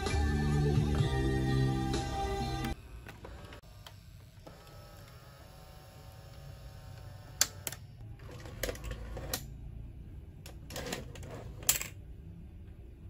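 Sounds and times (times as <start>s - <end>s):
faint motor whir: 2.7s - 9.6s.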